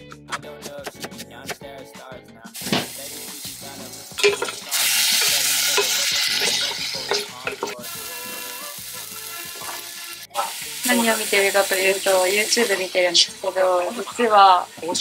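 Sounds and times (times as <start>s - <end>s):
knife chopping on cutting board: 0.2s - 1.6s
food sizzling in hot oil: 2.6s - 15.0s.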